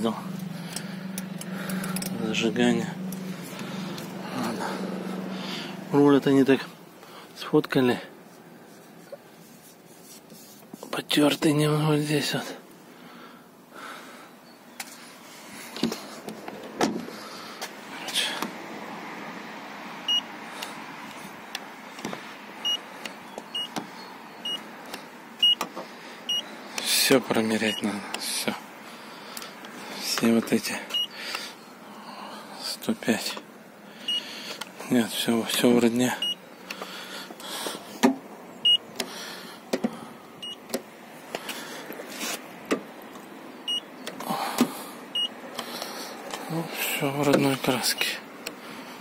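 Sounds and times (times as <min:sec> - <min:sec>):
gauge beeping: 0:23.5 - 0:23.8, 0:25.4 - 0:25.6, 0:36.2 - 0:36.4, 0:38.6 - 0:38.9, 0:40.4 - 0:40.6, 0:43.7 - 0:43.9, 0:45.1 - 0:45.4.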